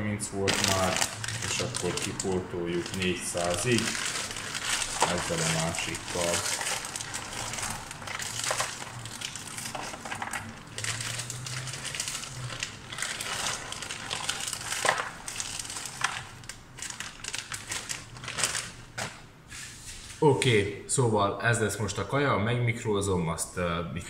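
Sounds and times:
frozen pieces dropping into bowl: 0.4s - 19.2s
plastic bag crinkling: 0.4s - 19.3s.

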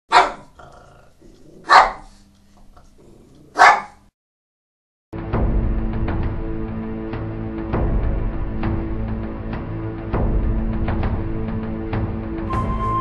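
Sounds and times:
dog barking: 0.1s - 0.5s, 1.6s - 2.2s, 3.5s - 4.1s
music: 5.1s - 13.0s.

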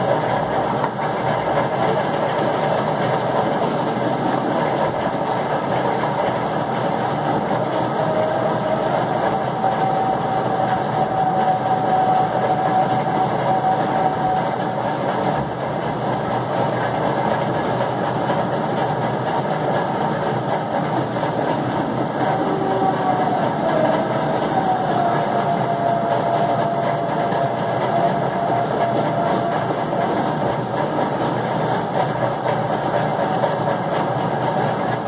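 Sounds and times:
mechanical motor drone: 2.4s - 15.6s, 20.6s - 32.0s.

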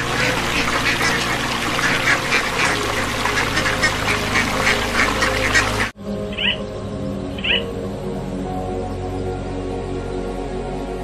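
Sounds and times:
ducks quacking: 0.0s - 6.6s.

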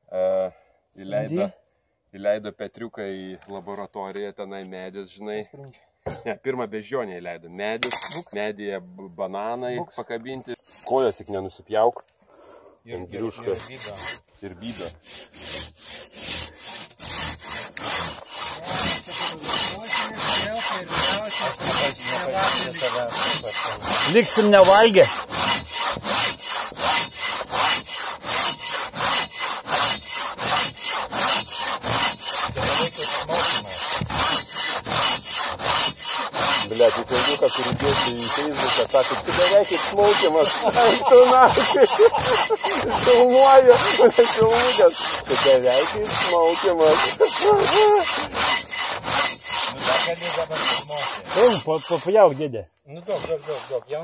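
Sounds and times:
hand saw cutting wood: 13.0s - 54.0s.

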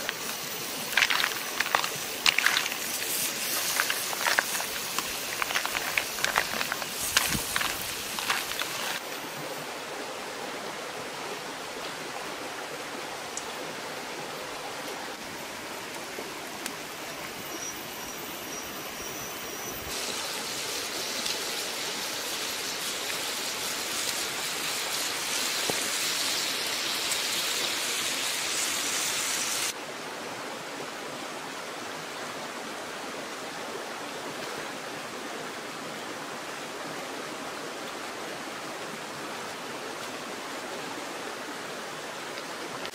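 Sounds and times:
food sizzling in a pan: 0.0s - 9.0s, 19.8s - 29.8s.

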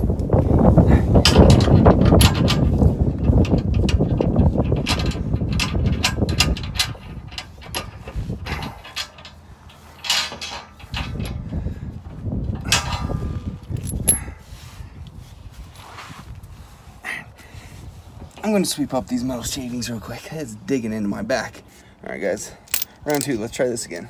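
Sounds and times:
metallic clicks and knocks: 22.7s - 23.4s.

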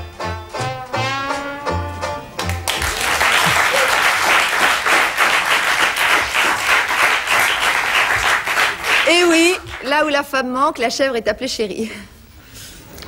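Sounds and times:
music: 0.0s - 3.7s
studio audience applauding: 2.4s - 10.0s.

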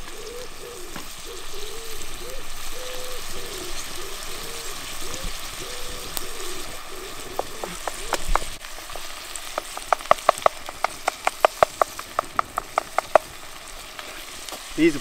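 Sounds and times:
tomatoes sizzling in pot: 0.0s - 15.0s
spatula knocking against pot: 7.3s - 8.5s, 9.6s - 13.3s.

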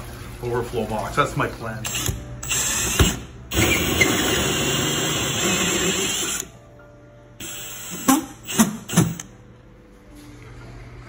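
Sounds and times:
drill cutting with hole saw: 1.9s - 6.5s, 7.4s - 9.2s.

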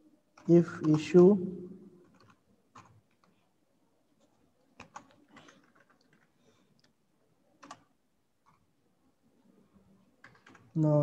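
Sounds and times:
keyboard keystrokes: 4.8s - 6.3s, 10.2s - 10.7s.

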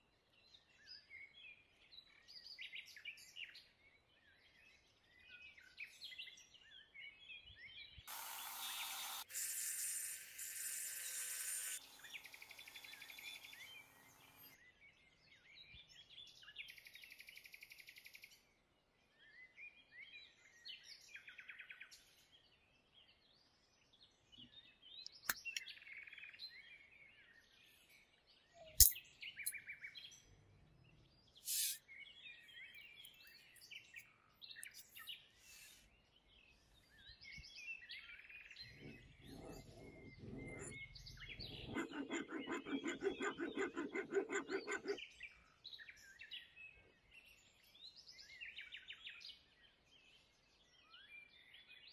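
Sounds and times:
birds chirping faintly: 6.8s - 16.8s, 20.8s - 48.6s
harsh buzzing noise: 8.1s - 14.4s
clicks of small metal parts: 28.8s - 29.6s.

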